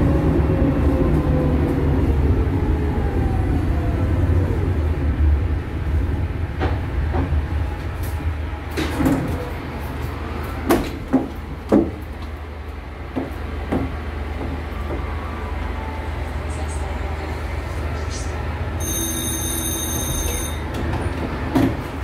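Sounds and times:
tram hum: 0:00.0 - 0:22.0
folding doors knocking and clattering: 0:10.6 - 0:12.0.

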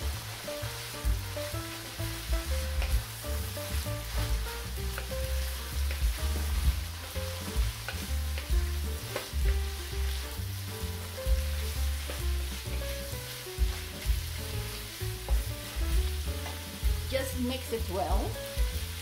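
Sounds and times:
background music with bass line: 0:00.0 - 0:19.0
vegetables sizzling in a wok: 0:00.0 - 0:19.0.

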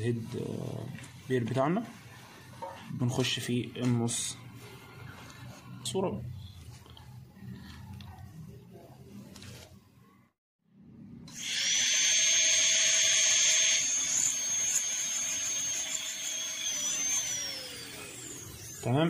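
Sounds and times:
dental drill whining: 0:11.3 - 0:19.0.

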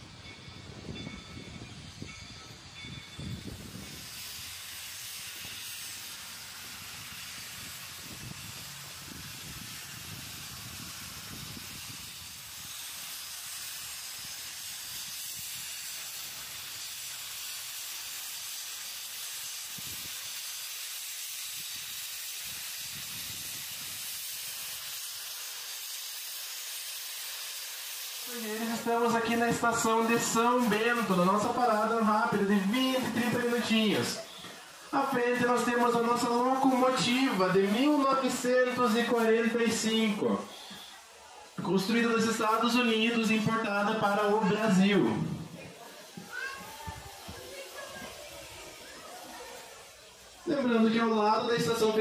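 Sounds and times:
low rumble of train: 0:00.0 - 0:35.0
steam locomotive venting steam: 0:00.0 - 0:52.0.

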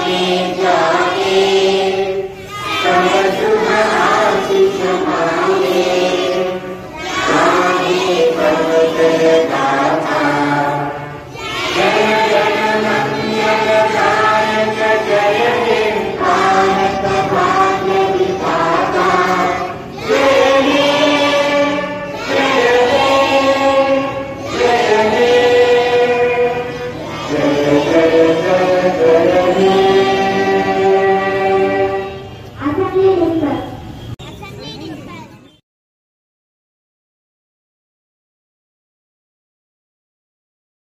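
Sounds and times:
children singing in unison: 0:00.0 - 0:32.5.

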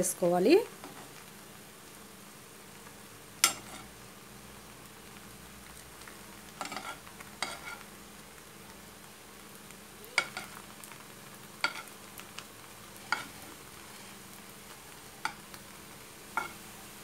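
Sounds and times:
bread sizzling in oil: 0:00.0 - 0:17.0
steel spoon clinking on pan: 0:03.4 - 0:03.8.

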